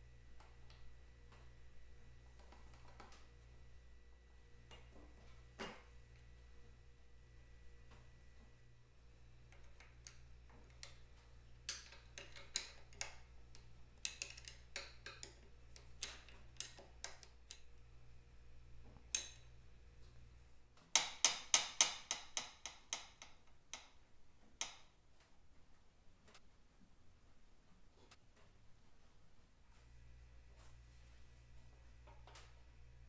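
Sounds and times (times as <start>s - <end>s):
faint low hum: 0.0s - 21.0s, 22.8s - 33.0s
hand tools clicking on metal: 11.7s - 17.7s.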